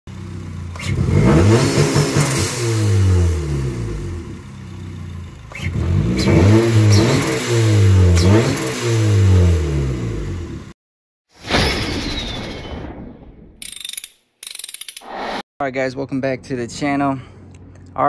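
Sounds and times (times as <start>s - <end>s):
car engine revving: 0.1s - 10.8s.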